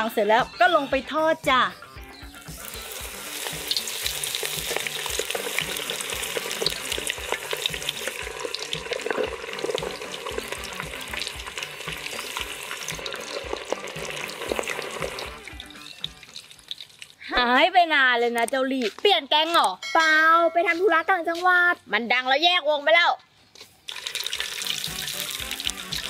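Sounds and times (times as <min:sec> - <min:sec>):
chicken sizzling in hot oil: 0:02.1 - 0:17.2, 0:23.9 - 0:26.0.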